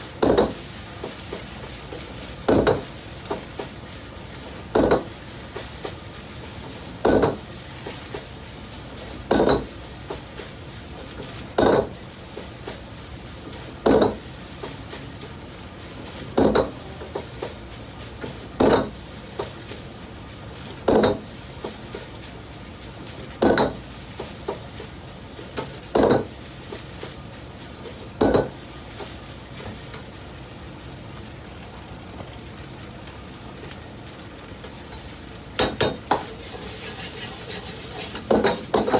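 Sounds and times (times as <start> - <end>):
kitchen rush: 36.0 - 38.9.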